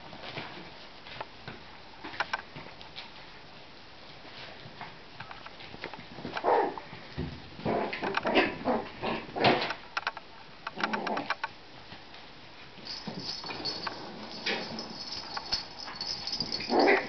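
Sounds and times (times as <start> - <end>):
paws clicking on floor: 10.8 - 17.0.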